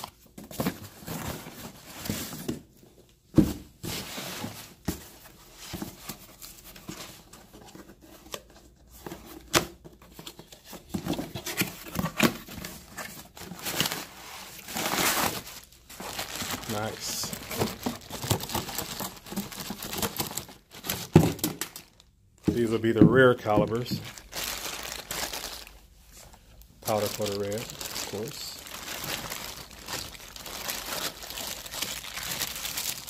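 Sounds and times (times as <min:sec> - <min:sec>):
cardboard rustling and scraping: 0:00.0 - 0:21.5.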